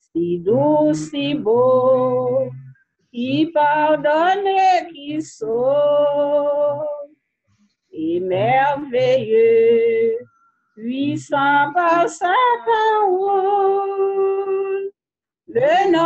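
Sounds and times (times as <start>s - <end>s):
woman singing a hymn: 0.0s - 2.6s, 3.2s - 7.1s, 8.0s - 10.2s, 10.8s - 14.9s, 15.5s - 16.0s.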